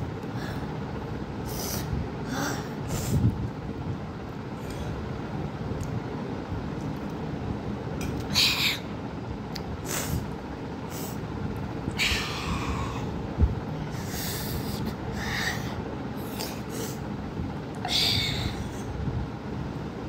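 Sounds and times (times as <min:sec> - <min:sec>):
steady background noise: 0:00.0 - 0:20.0
boy breathing hard and hissing: 0:00.2 - 0:00.8, 0:01.4 - 0:03.4, 0:08.3 - 0:08.9, 0:09.8 - 0:10.3, 0:10.9 - 0:11.3, 0:11.9 - 0:13.2, 0:13.8 - 0:17.1, 0:17.8 - 0:19.0.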